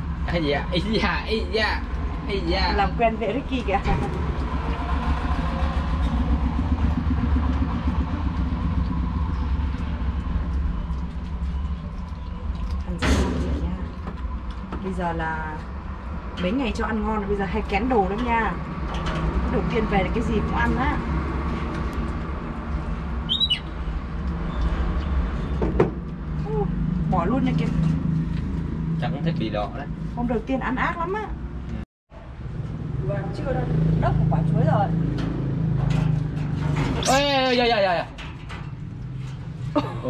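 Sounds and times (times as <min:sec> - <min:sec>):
low machine hum: 0:02.9 - 0:29.0
high falling chirp: 0:23.2 - 0:23.8.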